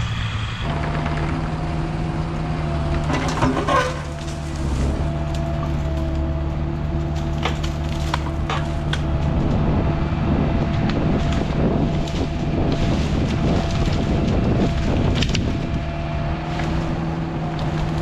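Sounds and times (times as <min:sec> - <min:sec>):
excavator engine running: 0:00.0 - 0:18.0
brush snapping and crackling: 0:02.2 - 0:06.3, 0:07.0 - 0:09.6, 0:10.5 - 0:18.0.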